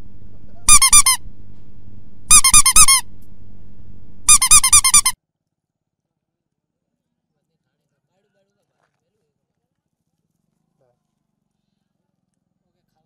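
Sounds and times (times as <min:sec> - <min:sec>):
high squeaky chirps: 0:00.0 - 0:01.4, 0:02.3 - 0:03.4, 0:04.2 - 0:05.2
low steady hum: 0:00.0 - 0:05.2.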